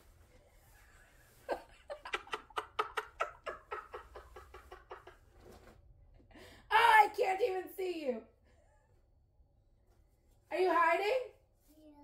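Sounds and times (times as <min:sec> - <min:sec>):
person giggling: 0:01.3 - 0:05.4.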